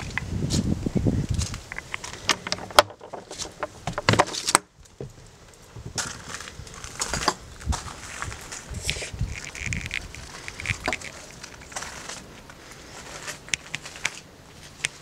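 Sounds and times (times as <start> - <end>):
footsteps: 3.2 - 15.0
footsteps on gravel: 5.8 - 15.0.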